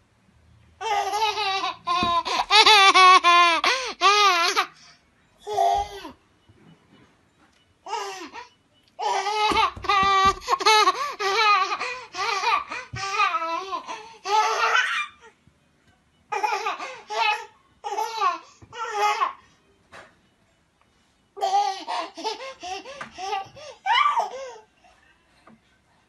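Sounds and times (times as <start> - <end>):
toddler laughing: 0.8 - 4.8.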